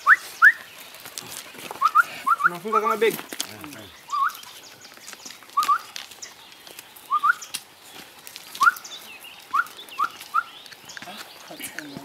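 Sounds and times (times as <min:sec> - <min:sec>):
rising whistle-like animal calls: 0:01.8 - 0:02.8, 0:04.1 - 0:04.5, 0:05.6 - 0:05.9, 0:07.1 - 0:07.5, 0:08.6 - 0:08.8, 0:09.5 - 0:10.6.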